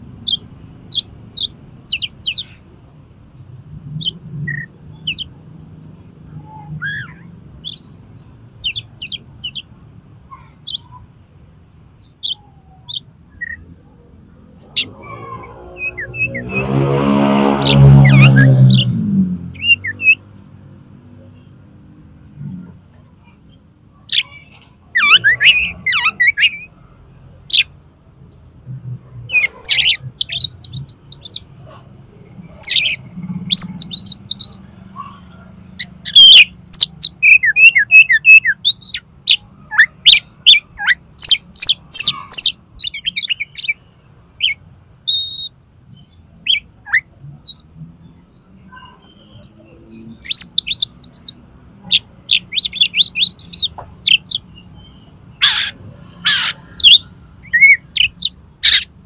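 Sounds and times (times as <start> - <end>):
bird singing chirps and whistles: 14.7 - 16.7, 25.0 - 26.7, 32.6 - 43.8, 44.4 - 47.6, 48.7 - 51.4, 52.3 - 55.7, 56.3 - 58.9.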